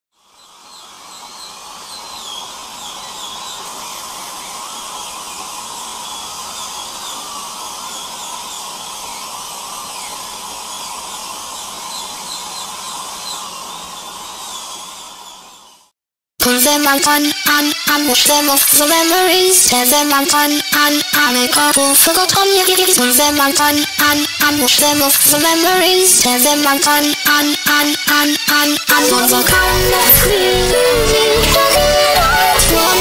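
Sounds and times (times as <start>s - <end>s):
music: 16.4s - 33.0s.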